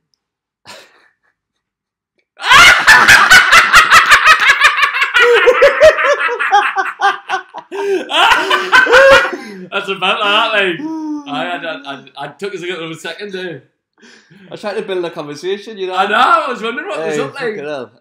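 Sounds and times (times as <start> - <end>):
men laughing heartily: 2.4 - 11.8.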